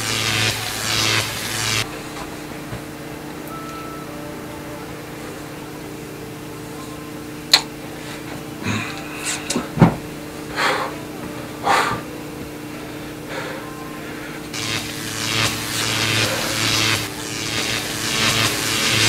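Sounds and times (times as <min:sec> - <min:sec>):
short noisy bursts: 0:00.0 - 0:02.7, 0:14.4 - 0:19.0
low electrical hum: 0:00.0 - 0:19.0.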